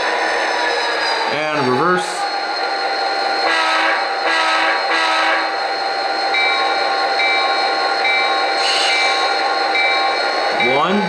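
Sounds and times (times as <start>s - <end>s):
locomotive bell ringing: 0.0s - 11.0s
model locomotive horn blasts: 3.4s - 5.5s.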